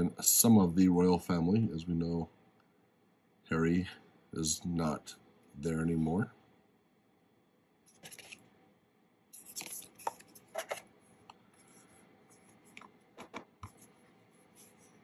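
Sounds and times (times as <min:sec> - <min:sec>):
paper rustling and scraping: 0:07.9 - 0:08.4, 0:09.4 - 0:10.8.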